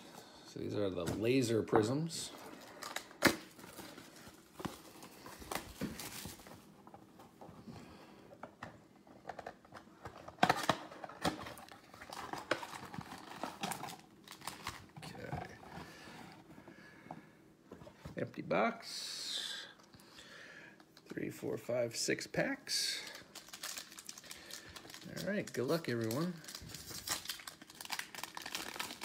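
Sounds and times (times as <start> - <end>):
card packs rustling and clicking: 0.8 - 7.7, 8.3 - 16.8, 22.7 - 29.0
plastic wrap crinkling: 2.3 - 6.8, 10.4 - 15.3, 22.9 - 29.0.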